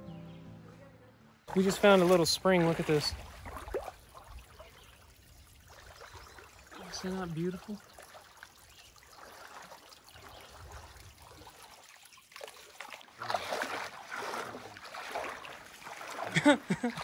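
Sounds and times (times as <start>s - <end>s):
water sloshing from wading: 1.5s - 17.0s.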